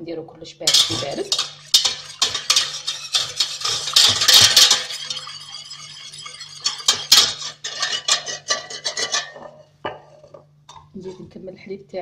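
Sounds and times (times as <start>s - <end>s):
whisk clinking against saucepan: 0.7s - 10.1s.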